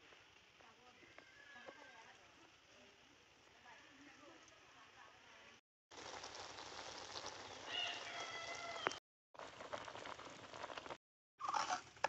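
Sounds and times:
pot boiling hard: 5.9s - 12.0s
rooster crowing: 7.6s - 9.0s.

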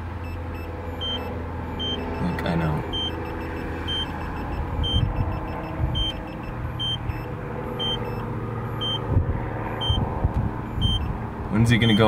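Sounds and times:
short high warning beeps: 0.2s - 9.0s, 10.7s - 11.1s.

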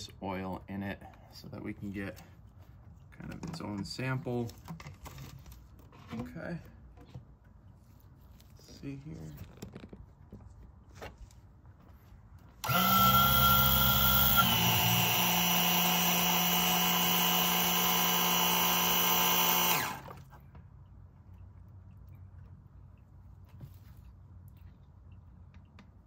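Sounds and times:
electric oil pump running: 12.6s - 20.4s.

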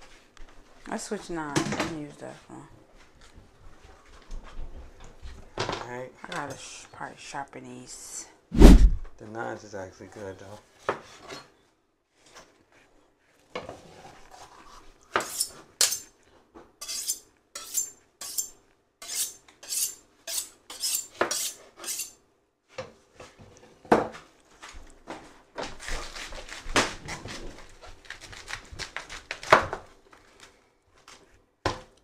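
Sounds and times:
knife cutting vegetables on a board: 14.4s - 16.1s.

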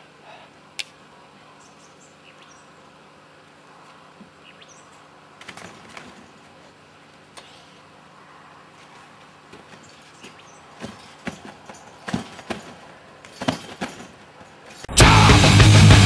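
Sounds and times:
faint steady hum: 0.0s - 15.2s
high bird chirps: 1.6s - 2.8s, 4.4s - 5.0s.

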